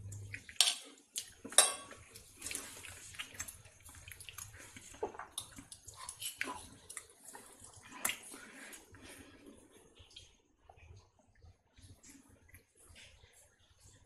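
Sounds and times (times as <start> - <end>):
cutlery clinking against a plate: 0.5 - 2.2.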